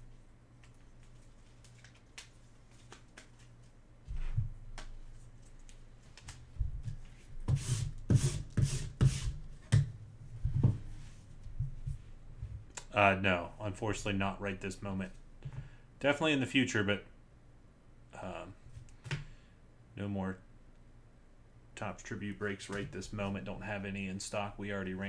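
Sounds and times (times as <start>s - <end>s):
plastic card sleeves rustling: 0.6s - 3.8s.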